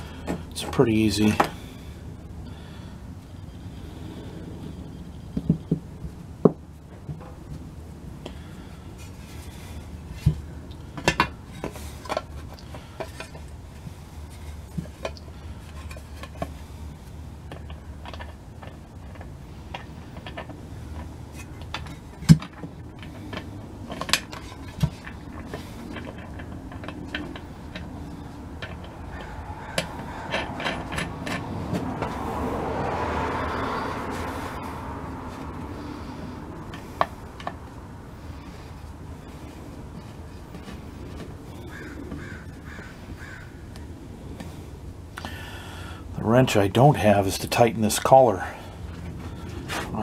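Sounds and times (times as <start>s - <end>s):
metal rubbing and scraping: 8.8s - 43.2s.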